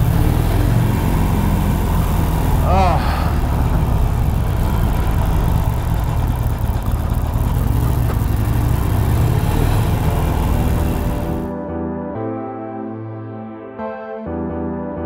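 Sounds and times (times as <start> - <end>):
motorcycle exhaust rumble echoing: 0.0 - 11.5.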